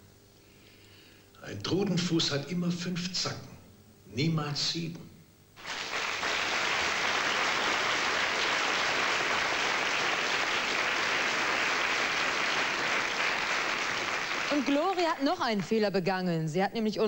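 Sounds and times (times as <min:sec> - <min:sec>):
audience applauding: 0:05.6 - 0:15.7.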